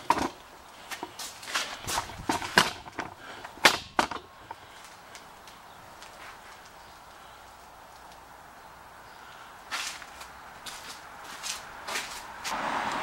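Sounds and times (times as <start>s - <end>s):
footsteps on concrete: 0.8s - 3.0s, 9.7s - 12.6s.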